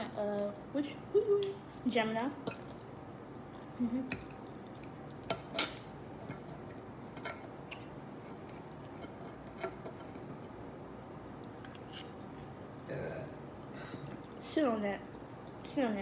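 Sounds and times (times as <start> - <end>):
dishes and cutlery clicking: 5.2 - 7.5, 8.4 - 10.3.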